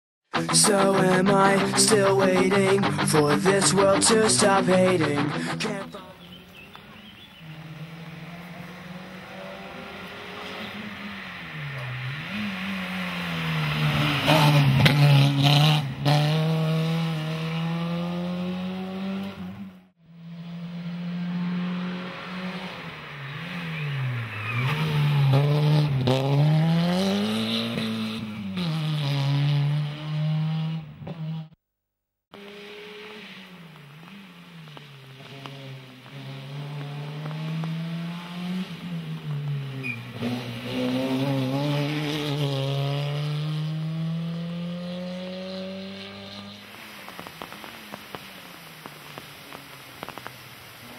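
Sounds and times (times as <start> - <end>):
rally car engine revving: 0.3 - 31.6, 32.3 - 50.2.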